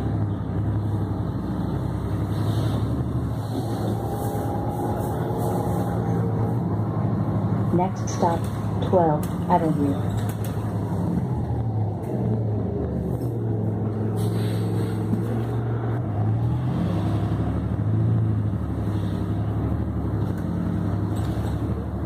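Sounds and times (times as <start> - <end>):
bus engine drone: 0.0 - 22.0
tyres hissing on wet road: 2.1 - 6.0, 14.0 - 15.4, 18.8 - 19.5.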